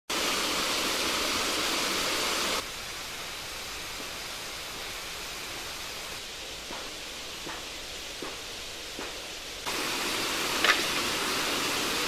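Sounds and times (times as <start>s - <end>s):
waterfall rushing: 0.1s - 6.3s, 9.6s - 12.0s
quiet steady hiss: 0.2s - 12.0s.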